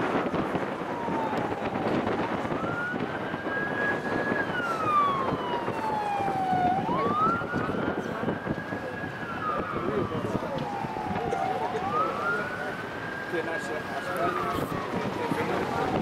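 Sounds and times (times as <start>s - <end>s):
steady rushing background noise: 0.0s - 16.0s
wailing emergency siren: 0.0s - 16.0s.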